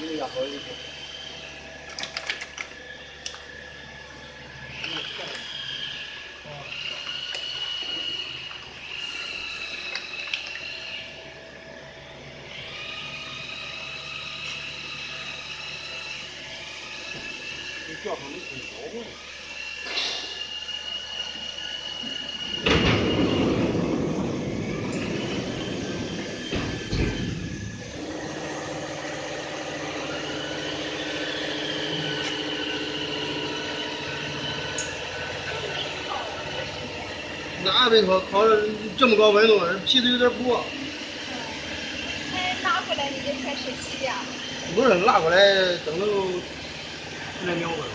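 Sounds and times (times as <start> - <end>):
laminating press hiss and whine: 0.0 - 47.9
machine humming with tones: 0.0 - 47.9.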